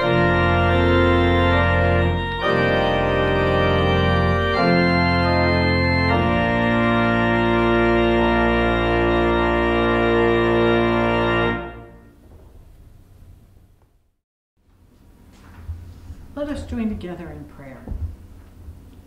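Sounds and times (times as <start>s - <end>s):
pipe organ chords: 0.0s - 12.2s.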